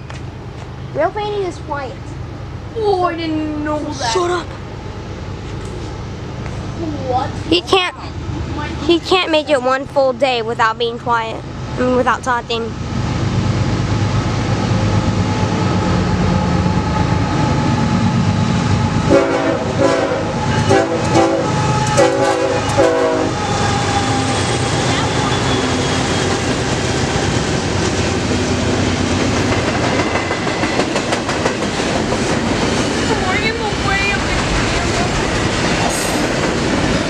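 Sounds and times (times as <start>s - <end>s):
diesel locomotive engine running: 0.0s - 37.0s
train cars rolling past: 0.0s - 37.0s
train air horn blasts: 19.0s - 26.0s.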